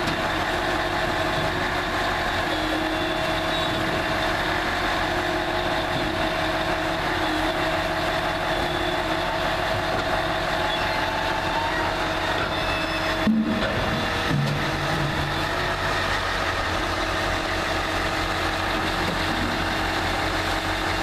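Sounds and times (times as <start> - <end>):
harvester machinery din: 0.0 - 21.0
machine whining tones: 10.6 - 16.2.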